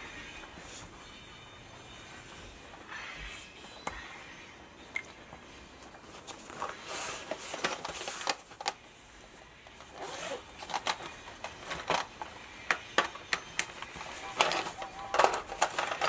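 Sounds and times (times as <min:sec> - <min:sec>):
paper rustling and scratching: 0:05.8 - 0:16.0.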